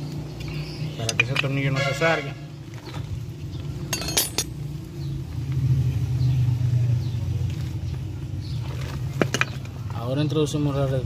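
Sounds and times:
metal parts clinking: 3.9s - 4.6s.

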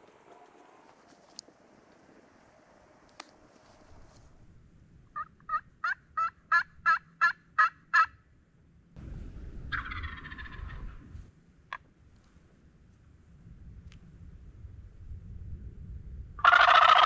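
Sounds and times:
turkey gobbling: 5.2s - 8.1s, 9.7s - 10.9s, 16.4s - 17.0s
turkey yelping: 5.2s - 8.1s, 9.7s - 10.9s, 16.4s - 17.0s
low rumble: 8.9s - 11.4s.

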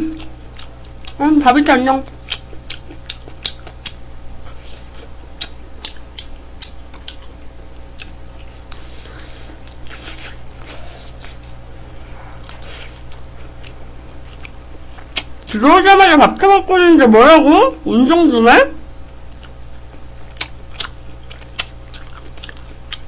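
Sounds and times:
low steady hum: 0.0s - 23.0s
biting and chewing meat: 0.2s - 1.3s, 2.0s - 15.6s, 19.1s - 23.0s
wet mouth clicks and smacks: 5.4s - 7.2s.

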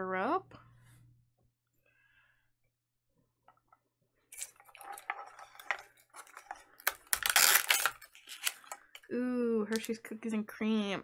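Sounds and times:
plastic wrapper crinkling: 4.3s - 9.0s.

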